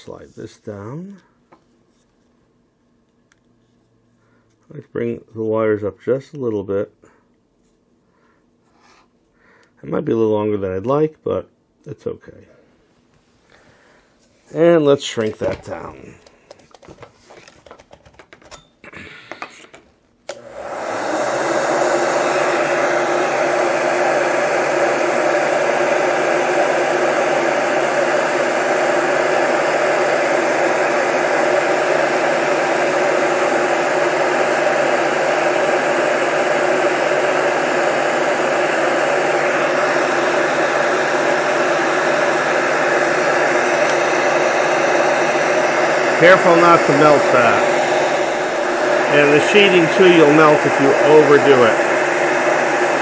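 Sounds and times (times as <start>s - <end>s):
heat gun blowing hot air: 19.3s - 53.0s.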